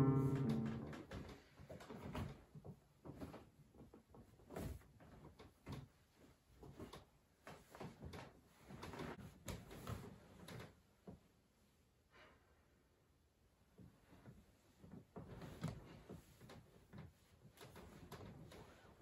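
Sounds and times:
rustling of bedding: 13.8 - 19.0.

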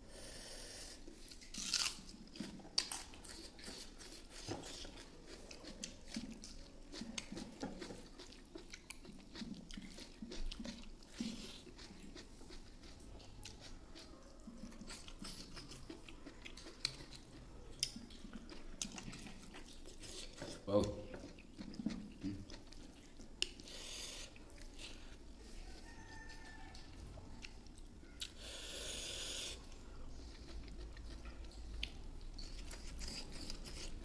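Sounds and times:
person chewing wetly: 1.0 - 34.0.

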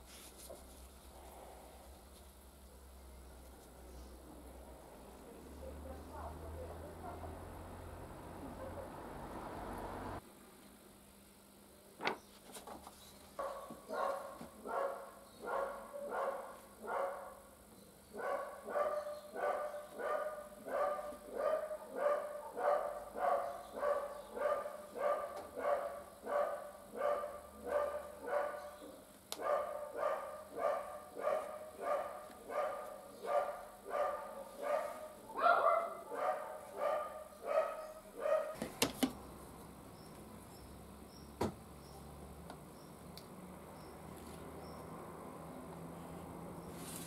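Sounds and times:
dog barking: 13.4 - 17.5, 18.1 - 38.6.

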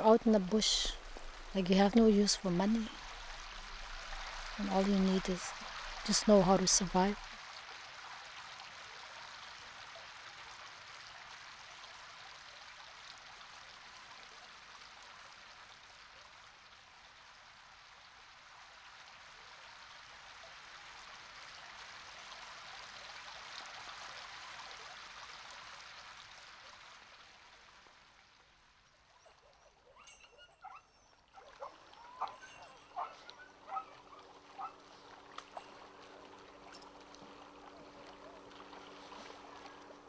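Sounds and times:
water running over stones: 0.0 - 28.8, 30.6 - 40.0.

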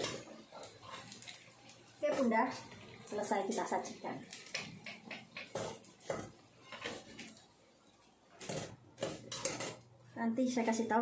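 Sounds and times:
metal spatula scraping frying pan: 0.0 - 2.8, 4.3 - 7.5, 8.4 - 9.9.

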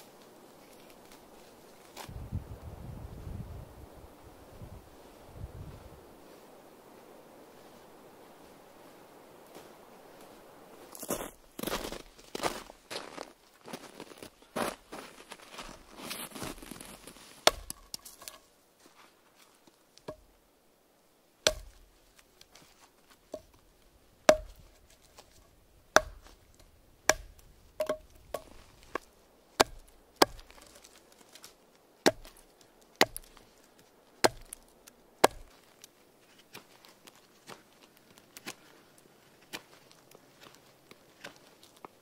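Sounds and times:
knife chopping wood: 17.4 - 18.0, 21.4 - 21.8, 24.3 - 24.7, 25.9 - 26.4, 27.0 - 30.8, 32.0 - 32.4, 33.0 - 33.4, 34.2 - 34.6, 35.2 - 35.6.

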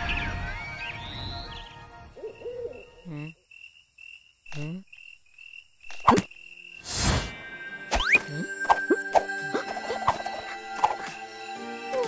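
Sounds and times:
insect chirping: 2.1 - 7.1
owl hooting: 2.2 - 3.1.

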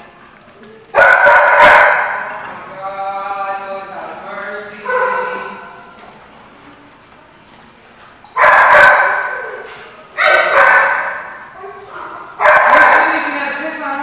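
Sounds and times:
dog barking loudly: 0.9 - 2.3, 4.8 - 5.6, 8.4 - 13.4.

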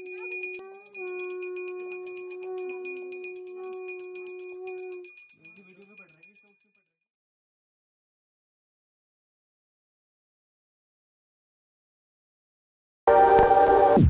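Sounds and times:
long steady note: 0.0 - 5.2
small bell rung rapidly: 0.0 - 7.0.

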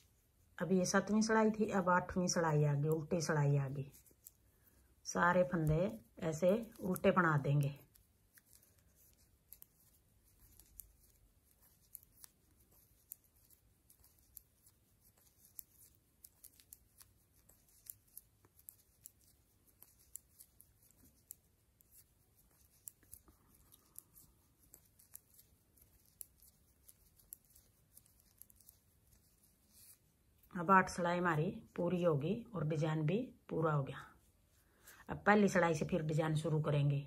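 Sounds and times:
knitting needles clicking: 2.0 - 30.6.

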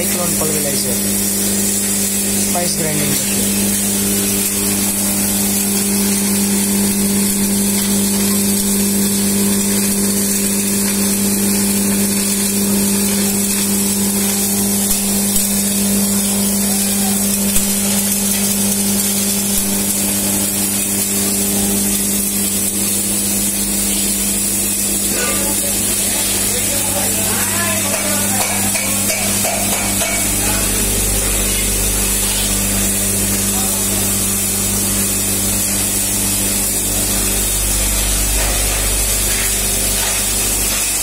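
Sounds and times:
electric grinder humming: 0.0 - 41.0.

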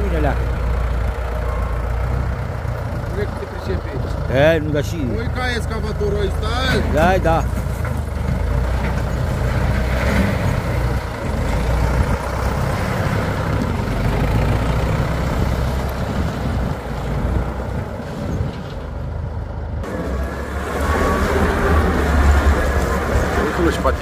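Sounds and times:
diesel engine running under load: 0.0 - 24.0
loader bucket pushing gravel: 19.8 - 24.0.

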